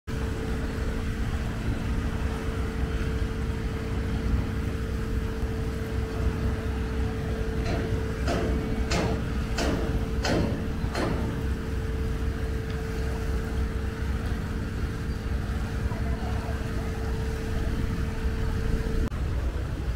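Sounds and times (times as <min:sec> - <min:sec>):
boat diesel engine running: 0:00.1 - 0:19.9
sharp knocks: 0:07.6 - 0:11.4.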